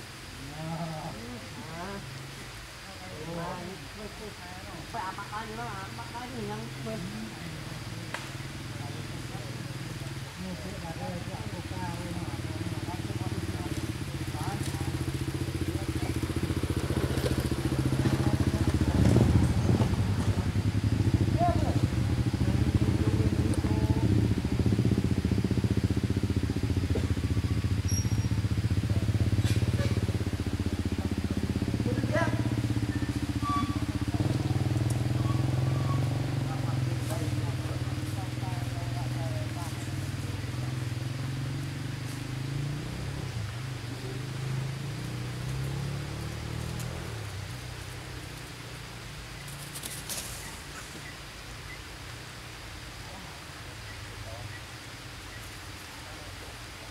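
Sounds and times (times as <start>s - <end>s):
small engine idling: 6.0s - 41.5s.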